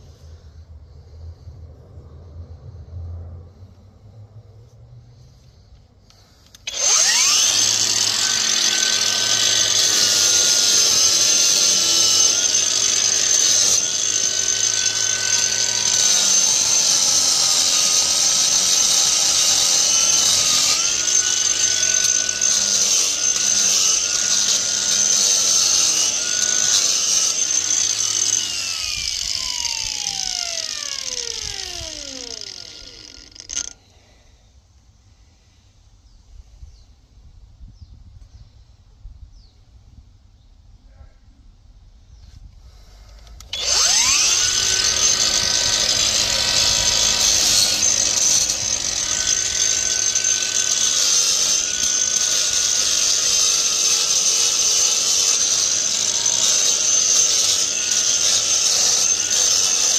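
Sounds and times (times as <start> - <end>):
power grinder whining: 6.5 - 33.8, 43.2 - 59.9.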